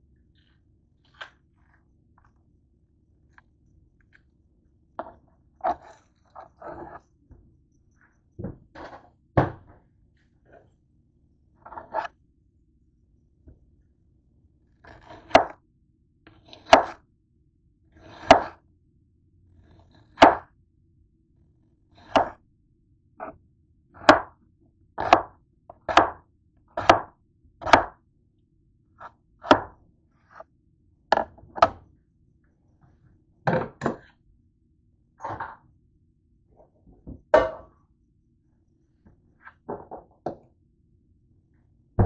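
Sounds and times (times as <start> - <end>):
knife slicing onion: 14.8 - 15.6, 16.4 - 17.0, 18.0 - 18.6, 19.6 - 20.5, 22.0 - 22.4, 24.0 - 24.4, 25.0 - 28.0, 29.0 - 30.4.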